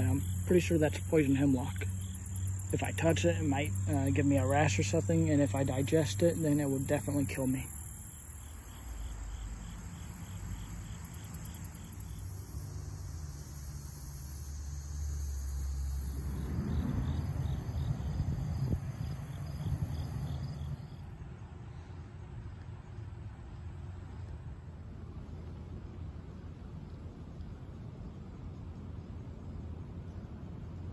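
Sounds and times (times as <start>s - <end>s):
crickets and insects trilling: 0.0s - 21.1s.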